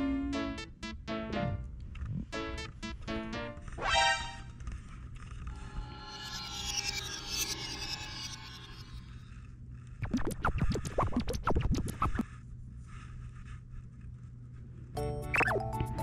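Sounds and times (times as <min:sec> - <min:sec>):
background music: 0:00.0 - 0:04.6, 0:15.0 - 0:16.0.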